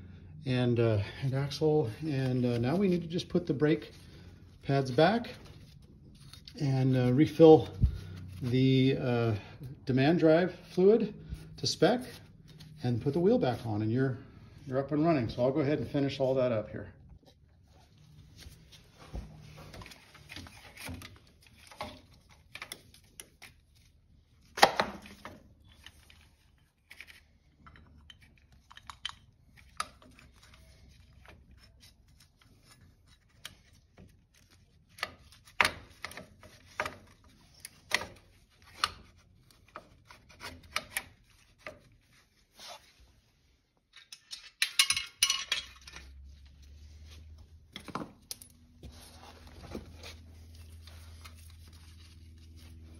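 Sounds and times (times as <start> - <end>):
metal tools clinking and knocking: 43.9 - 46.2.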